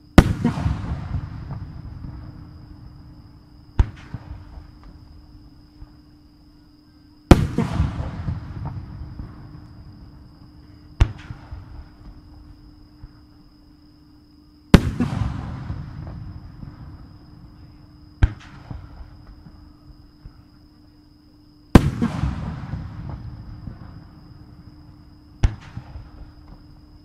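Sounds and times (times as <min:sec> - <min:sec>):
fireworks bursting with echoing rumble: 0:00.0 - 0:05.0, 0:07.3 - 0:12.4, 0:14.7 - 0:19.6, 0:21.7 - 0:26.8
sharp firework reports: 0:00.2 - 0:02.4, 0:07.3 - 0:09.3.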